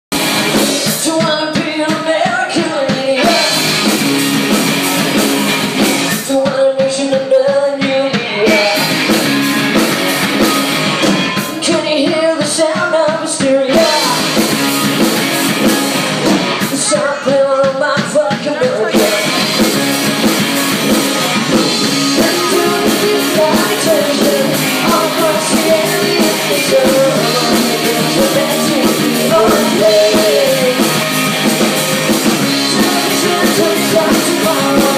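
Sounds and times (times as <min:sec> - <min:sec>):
drums: 0:00.0 - 0:34.9
electric guitars: 0:00.1 - 0:34.9
person singing into a microphone: 0:00.5 - 0:03.7, 0:06.1 - 0:09.2, 0:11.4 - 0:14.6, 0:16.6 - 0:19.9, 0:21.2 - 0:31.4, 0:32.2 - 0:34.9.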